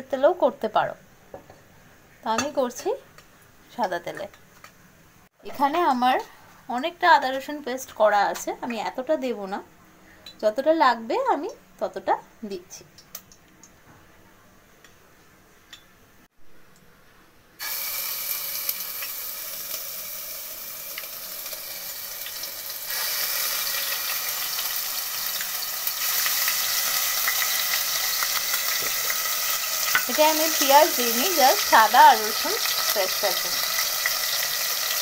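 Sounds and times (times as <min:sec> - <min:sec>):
cooking oil sizzling: 0:17.6 - 0:35.0.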